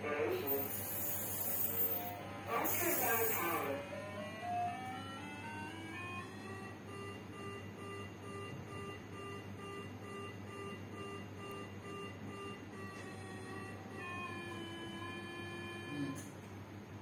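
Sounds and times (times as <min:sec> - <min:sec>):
steady electronic tone: 0:00.4 - 0:16.2
repeating electronic beep: 0:00.5 - 0:12.6.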